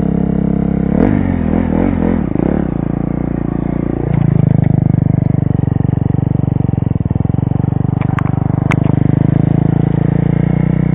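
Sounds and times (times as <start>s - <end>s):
motorcycle engine running: 0.0s - 10.9s
motorcycle tipping over clatter: 4.0s - 9.7s.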